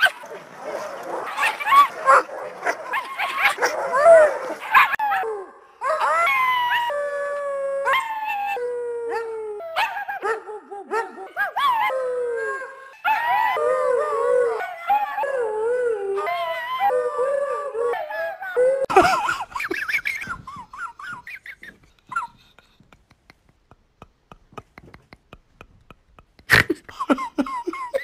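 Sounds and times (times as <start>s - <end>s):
dogs barking and yipping: 0.0s - 6.9s, 18.8s - 22.8s
dog howling: 1.2s - 18.9s
woman howling: 3.9s - 19.0s.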